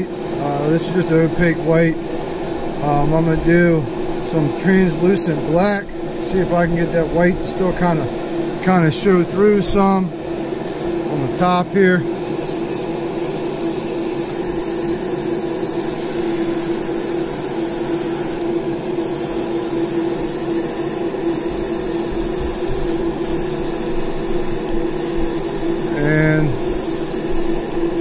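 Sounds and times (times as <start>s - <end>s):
spray booth fan humming: 0.0s - 28.0s
airbrush spraying hiss: 12.4s - 18.4s, 19.0s - 28.0s.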